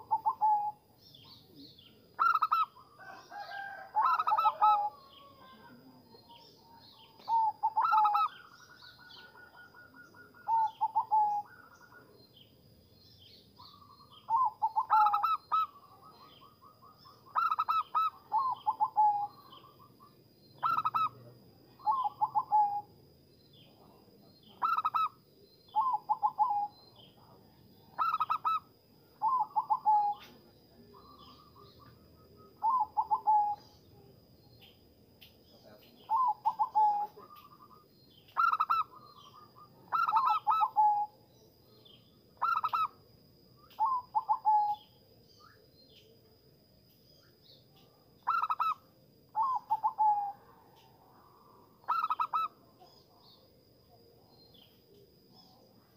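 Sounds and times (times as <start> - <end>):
dove cooing: 0.0 - 0.8, 1.5 - 6.4, 7.0 - 12.2, 13.7 - 19.8, 20.6 - 21.2, 21.8 - 22.9, 24.6 - 26.8, 28.0 - 33.7, 36.1 - 37.8, 38.4 - 41.2, 42.4 - 43.0, 43.8 - 44.9, 48.2 - 51.0, 51.8 - 53.1
faint high-pitched bird trills: 0.0 - 12.4, 13.4 - 22.9, 23.5 - 27.3, 27.9 - 34.8, 35.4 - 43.0, 43.6 - 46.1, 47.1 - 51.0, 51.8 - 53.4.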